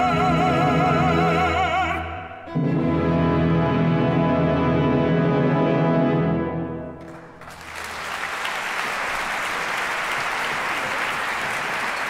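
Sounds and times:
orchestra chord: 2.5 - 7.0
audience applause: 7.0 - 12.0.

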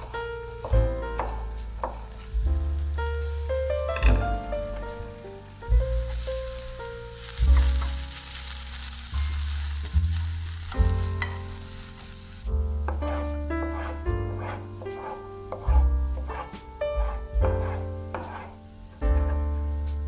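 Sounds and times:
background music with bass line: 0.0 - 8.1, 8.9 - 14.7
vegetables sizzling in a frying pan: 0.0 - 20.0
wooden spatula stirring: 12.9 - 18.6.

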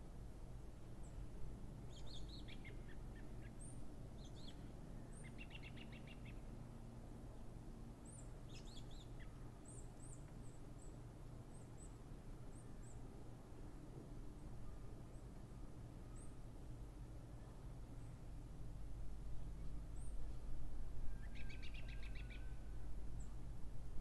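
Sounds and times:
low steady background rumble: 0.0 - 24.0
songbirds chirping: 1.0 - 6.6.

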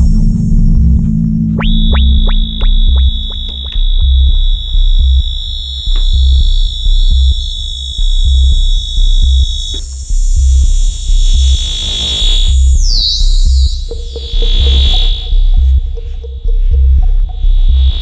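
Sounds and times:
deep bass pulse: 0.0 - 18.0
high-pitched synthesizer tone: 1.6 - 4.1.

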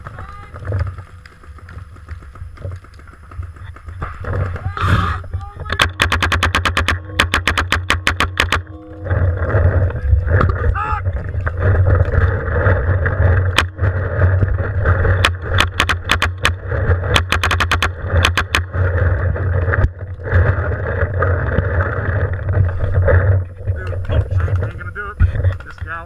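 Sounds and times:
low rumble: 0.0 - 26.0
paintball marker pops: 5.8 - 8.6, 15.2 - 18.6.

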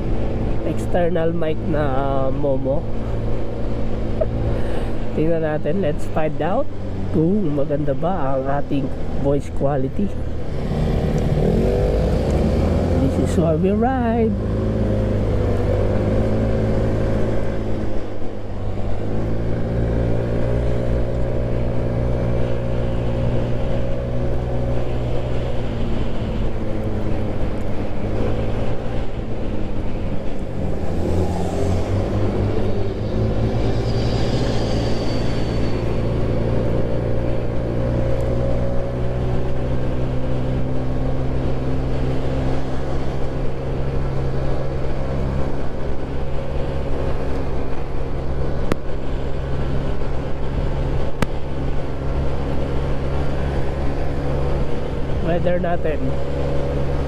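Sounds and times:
motorbike engine cruising: 9.9 - 57.0.

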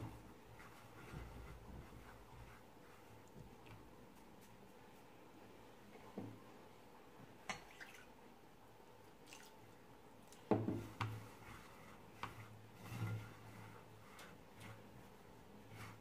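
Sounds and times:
hands rolling grains on a plate: 0.0 - 5.1, 10.4 - 16.0.

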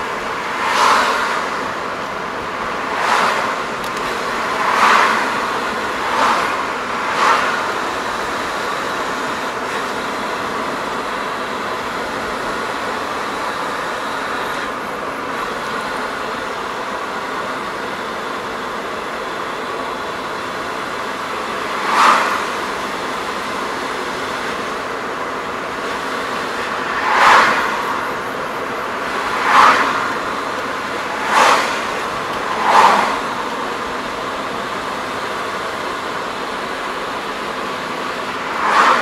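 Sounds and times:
passing vehicle whooshes: 0.0 - 9.6, 21.5 - 23.4, 25.6 - 35.2, 38.2 - 39.0
road noise inside car: 0.0 - 39.0.

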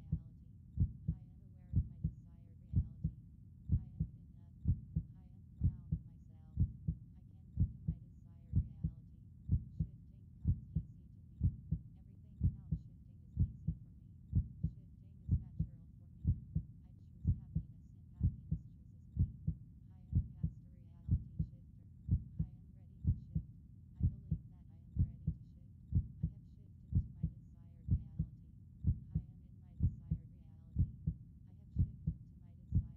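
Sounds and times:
heartbeat double thump: 0.8 - 1.2, 1.8 - 2.1, 2.7 - 3.1, 3.7 - 6.0, 7.6 - 8.0, 11.4 - 11.8, 12.4 - 12.8, 14.4 - 14.7, 15.3 - 16.6, 17.2 - 17.6, 19.2 - 20.5, 29.8 - 30.2, 30.8 - 31.2, 31.8 - 32.9.

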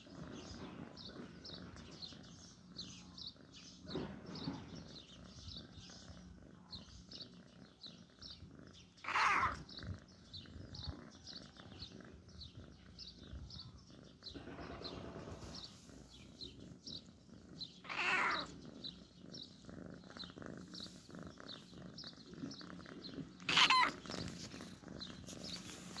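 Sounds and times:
kitten meowing: 17.9 - 18.5, 23.5 - 24.0.

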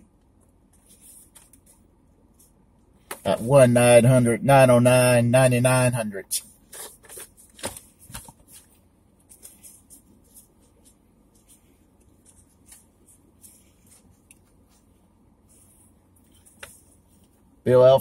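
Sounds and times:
t-shirt rustling: 6.6 - 17.6.

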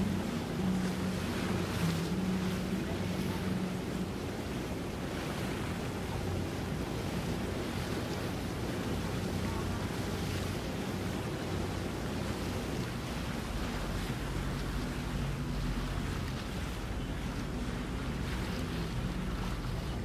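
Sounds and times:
boat engines humming: 0.0 - 20.0
water noise: 0.0 - 20.0
wind on microphone: 0.0 - 20.0.

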